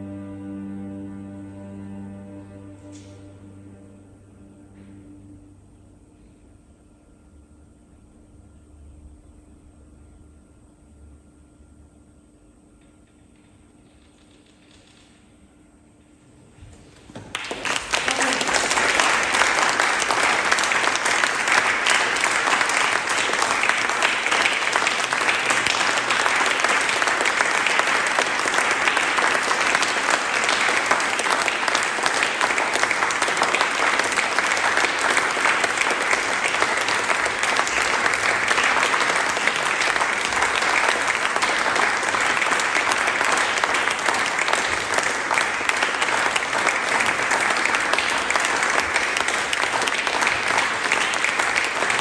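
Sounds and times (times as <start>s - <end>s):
audience applauding: 16.9s - 52.0s.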